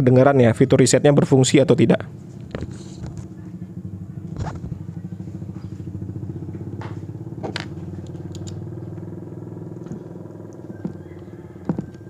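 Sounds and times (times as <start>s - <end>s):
small engine idling: 2.0s - 12.0s
ratchet screwdriver clicks and taps: 8.0s - 8.6s.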